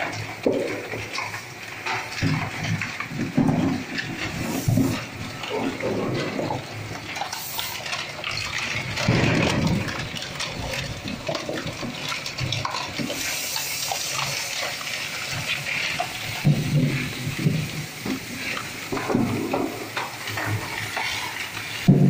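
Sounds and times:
shredder crunching plastic: 2.1s - 13.1s.

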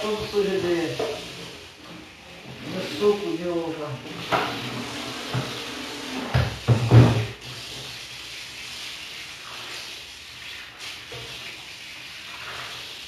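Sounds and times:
running tap water: 0.0s - 13.0s
glass shelf knocking in sink: 6.3s - 7.4s.

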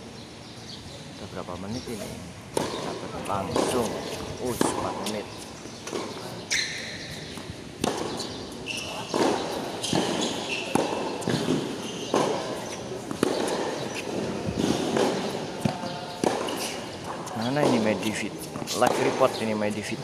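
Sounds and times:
tennis ball knocks off rackets: 2.5s - 5.1s, 7.3s - 8.4s, 9.1s - 16.8s
shoe squeaks on court: 6.1s - 15.1s.

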